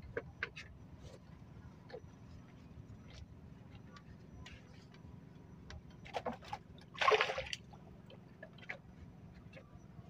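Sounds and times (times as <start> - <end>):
water splashing: 6.9 - 7.7.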